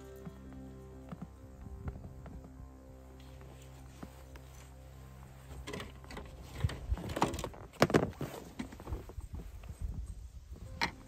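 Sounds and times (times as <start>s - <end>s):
gear handling knocks and clicks: 5.6s - 11.0s.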